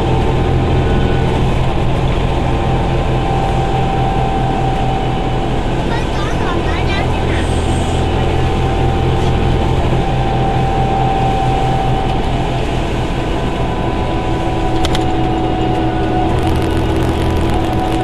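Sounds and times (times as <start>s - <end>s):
bus engine rumble: 0.0s - 18.0s
cooling fan whine: 0.0s - 18.0s.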